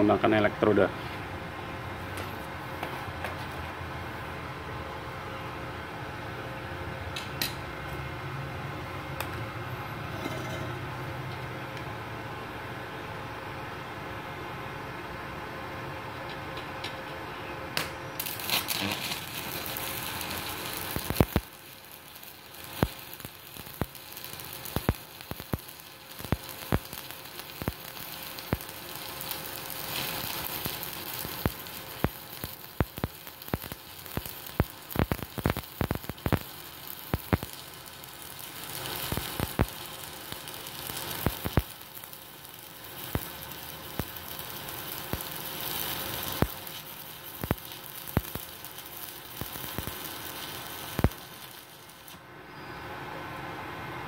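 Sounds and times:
welding arc hissing and crackling: 17.8s - 52.6s.

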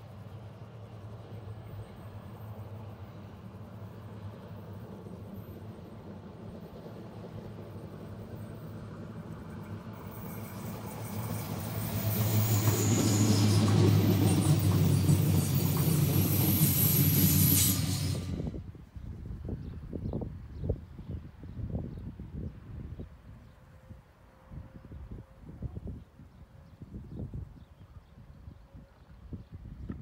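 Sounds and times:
train wheels rumbling on rails: 0.0s - 18.8s.

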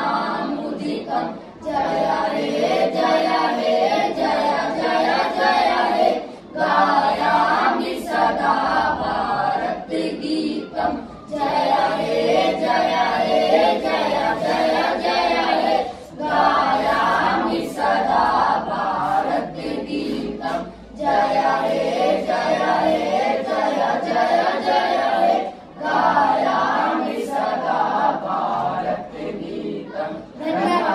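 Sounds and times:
boys singing unaccompanied: 0.0s - 30.9s.

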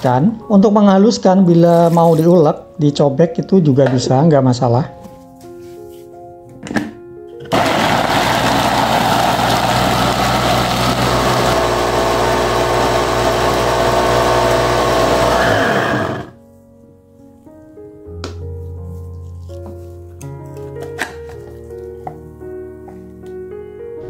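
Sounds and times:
food chopper motor running: 7.5s - 16.4s.

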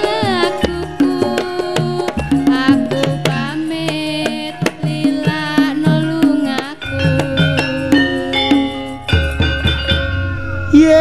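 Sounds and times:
hand drum strokes: 0.0s - 11.0s
melody bending in pitch: 6.4s - 11.0s.

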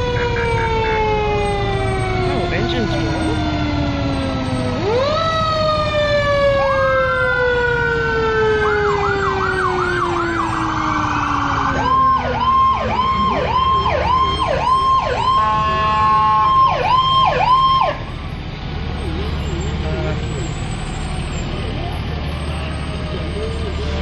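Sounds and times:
rapid siren yelp: 0.0s - 18.2s
fire engine siren wailing: 0.0s - 24.0s
low rumble of truck engines: 0.0s - 24.0s.

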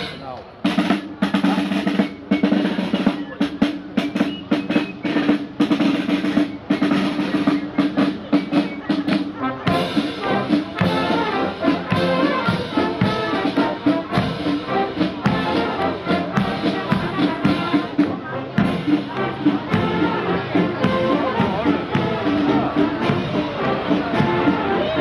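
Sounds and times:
brass playing a march: 0.0s - 25.0s
steady drum beat: 0.0s - 25.0s.

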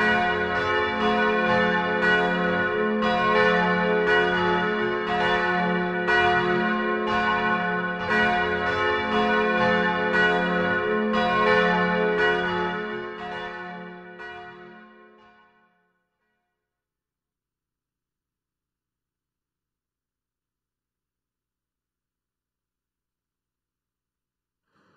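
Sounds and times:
church bells ringing: 0.0s - 16.4s.

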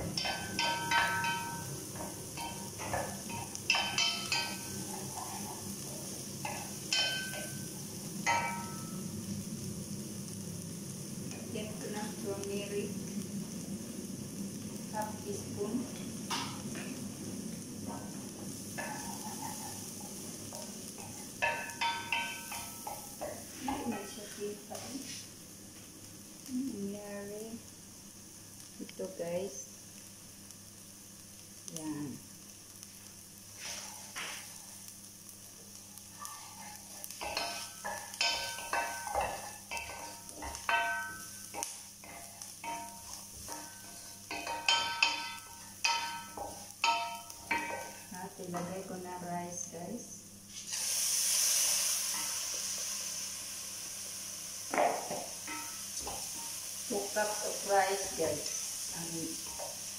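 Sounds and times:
wooden spoon knocking a pot: 0.0s - 4.7s, 20.5s - 24.1s, 37.2s - 48.7s, 54.7s - 56.3s
onion sizzling in oil: 0.0s - 59.9s
wooden spoon scraping pot: 18.8s - 21.4s.

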